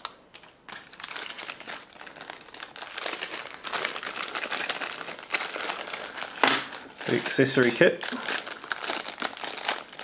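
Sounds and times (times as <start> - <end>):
packaging crinkling: 0.0 - 10.0.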